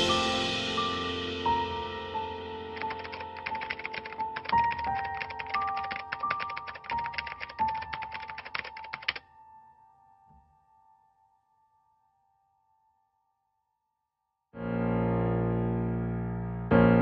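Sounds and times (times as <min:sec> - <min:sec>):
soft background music: 0:00.0 - 0:11.2
keyboard typing clicks: 0:02.8 - 0:09.2.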